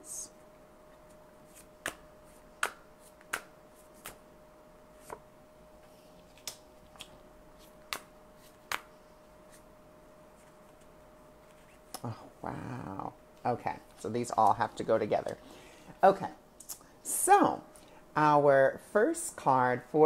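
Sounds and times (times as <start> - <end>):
faint steady hum: 0.0 - 20.0
cards snapping and flicking: 1.5 - 4.2, 6.3 - 8.9.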